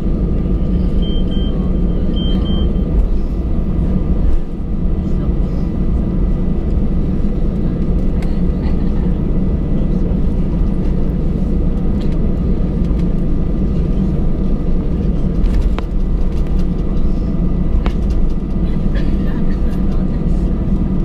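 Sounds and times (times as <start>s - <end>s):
aircraft engines idling rumble: 0.0s - 21.0s.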